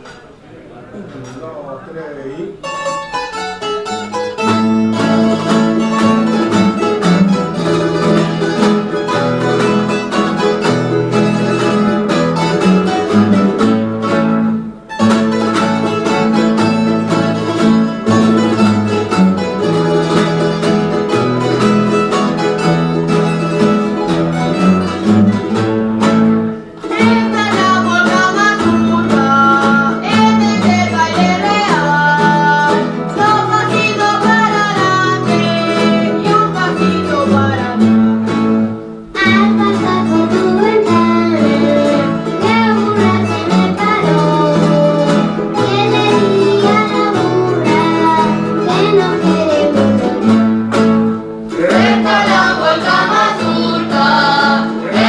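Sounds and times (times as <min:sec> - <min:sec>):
folk string ensemble playing: 0:02.7 - 0:55.0
people singing: 0:26.8 - 0:38.0, 0:51.5 - 0:55.0.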